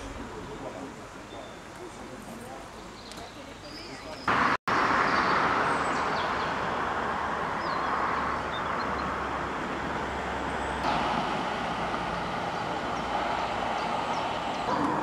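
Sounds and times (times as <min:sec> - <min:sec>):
street noise: 0:00.0 - 0:15.0
car engines passing: 0:04.0 - 0:15.0.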